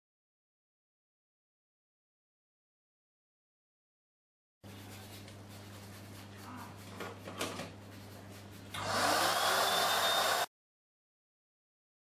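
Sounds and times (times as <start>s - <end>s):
towel rubbing wet fur: 4.6s - 9.3s
blow dryer whine and air rush: 8.8s - 10.5s.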